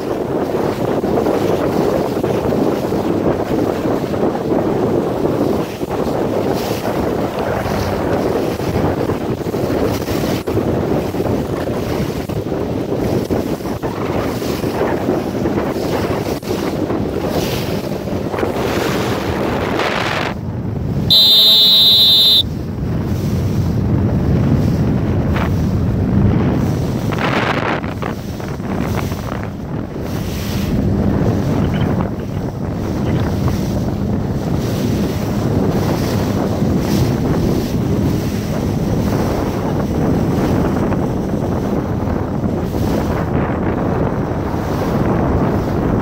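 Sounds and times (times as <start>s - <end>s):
wind buffeting microphone: 0.0s - 21.2s, 22.4s - 46.0s
choppy waves slapping: 0.0s - 46.0s
loud steady tone: 21.1s - 22.5s.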